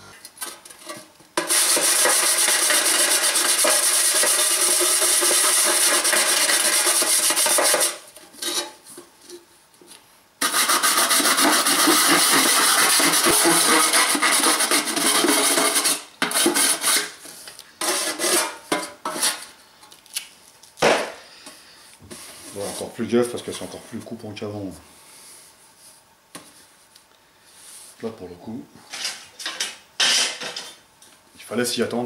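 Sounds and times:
abrasive pad rasping on metal: 1.4s - 8.6s, 10.4s - 17.1s.

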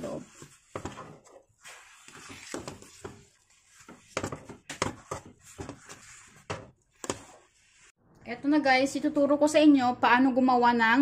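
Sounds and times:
utensil stirring thick dough: 0.0s - 8.0s.

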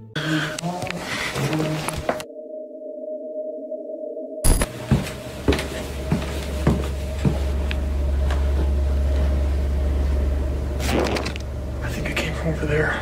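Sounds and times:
low hum: 0.1s - 13.0s
slow footsteps: 4.6s - 10.2s.

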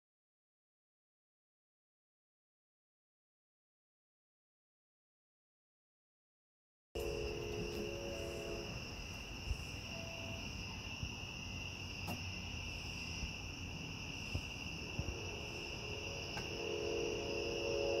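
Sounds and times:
crickets chirring: 7.0s - 18.0s.

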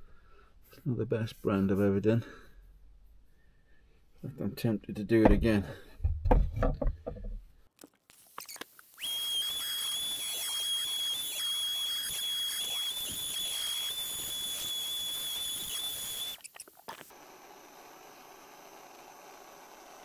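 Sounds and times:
gas torch burning with whistle: 8.4s - 16.6s.

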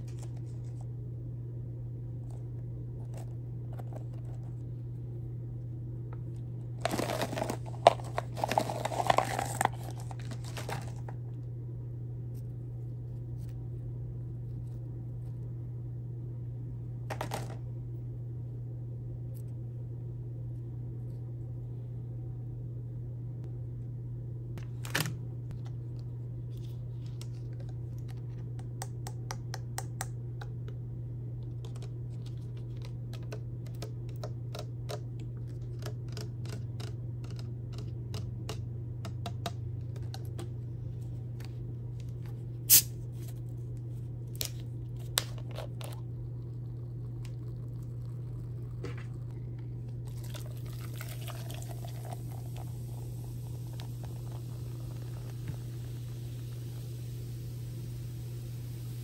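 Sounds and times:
steady low hum: 0.0s - 59.0s
hands handling candy packs: 6.8s - 11.2s
soda pouring and fizzing: 50.1s - 59.0s.

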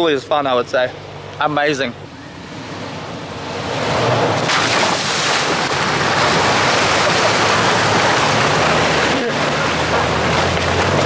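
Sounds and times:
low engine hum: 0.0s - 11.0s
loud rushing noise: 2.0s - 9.8s.

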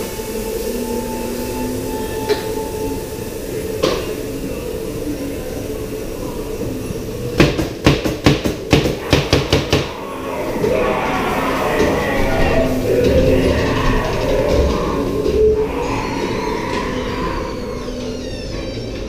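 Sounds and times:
ride car rumbling on track: 0.0s - 19.0s
sharp knocks: 7.4s - 10.0s.

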